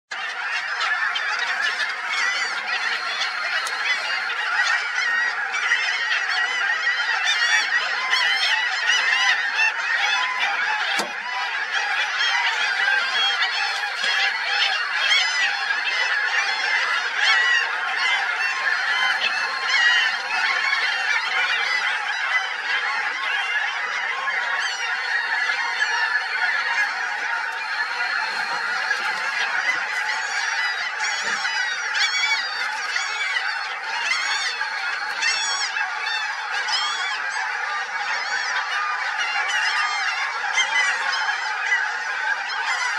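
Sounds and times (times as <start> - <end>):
flock of birds calling: 0.1 - 42.9.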